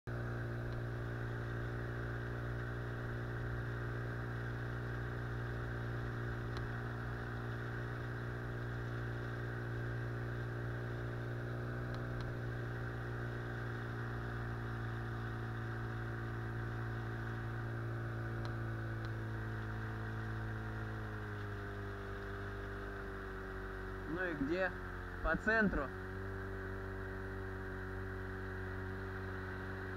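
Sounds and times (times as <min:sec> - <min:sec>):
outboard motor humming: 0:00.1 - 0:29.9.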